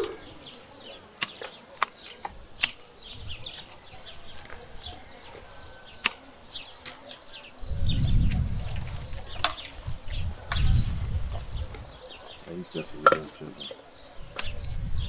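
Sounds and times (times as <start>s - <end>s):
small birds chirping: 0.0s - 15.0s
pruning shears snipping: 1.2s - 2.8s, 6.0s - 6.2s.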